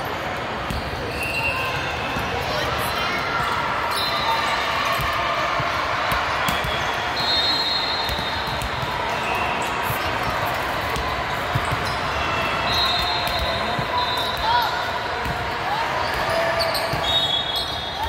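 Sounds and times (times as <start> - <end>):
sneakers squeaking: 0.7 - 2.4, 6.1 - 18.0.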